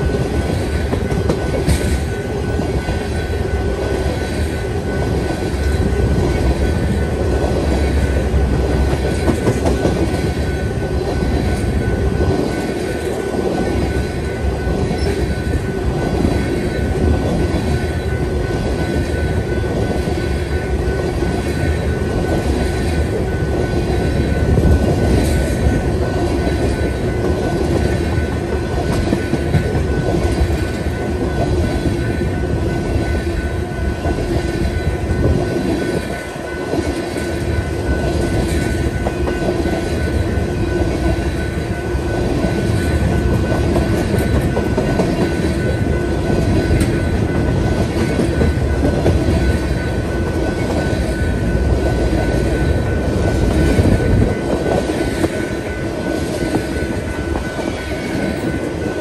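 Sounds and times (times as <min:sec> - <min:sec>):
freight train rumbling: 0:00.0 - 0:59.0
high ring from wheels: 0:00.0 - 0:59.0.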